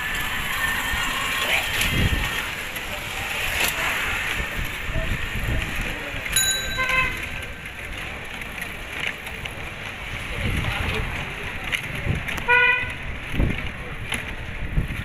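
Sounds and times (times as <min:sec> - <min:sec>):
street noise: 0:00.0 - 0:15.0
bicycle bell ring: 0:06.3 - 0:07.7
horn toot: 0:06.7 - 0:07.4.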